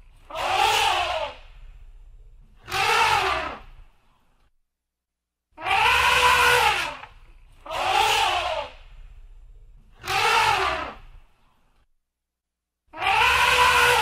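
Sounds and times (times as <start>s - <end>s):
elephant trumpeting: 0.2s - 1.4s, 2.6s - 3.8s, 5.6s - 9.0s, 10.0s - 11.2s, 12.9s - 14.0s.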